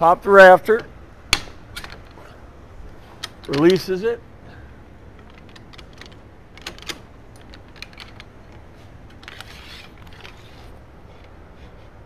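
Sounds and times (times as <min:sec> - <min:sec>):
light hardware clicks: 0:03.1 - 0:03.9
short scraping slide: 0:09.3 - 0:11.9.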